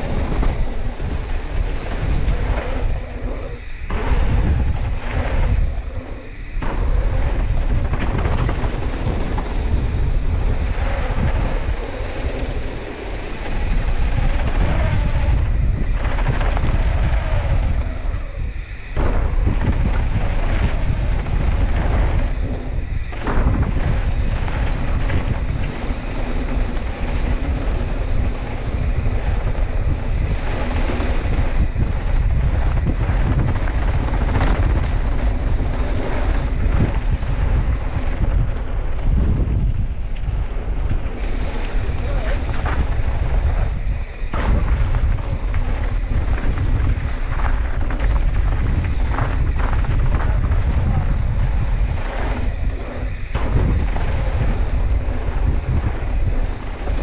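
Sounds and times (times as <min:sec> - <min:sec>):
bike tyres rumbling on dirt: 0:00.0 - 0:57.0
wind buffeting microphone: 0:00.0 - 0:57.0.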